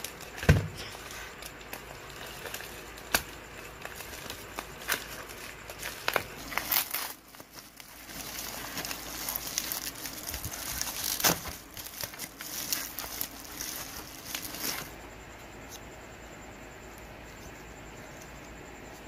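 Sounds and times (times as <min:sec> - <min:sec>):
plastic wrap crinkling: 0:00.0 - 0:15.0.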